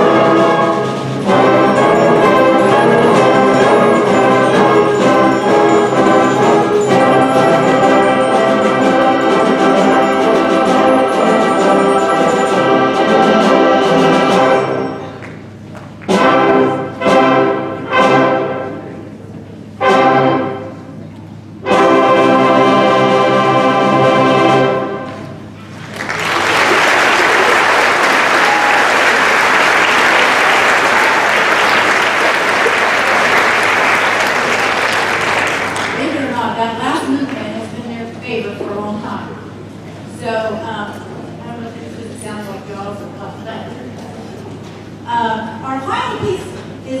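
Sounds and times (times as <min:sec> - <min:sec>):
concert band playing chords: 0:00.0 - 0:15.0
audience applause: 0:25.7 - 0:36.1.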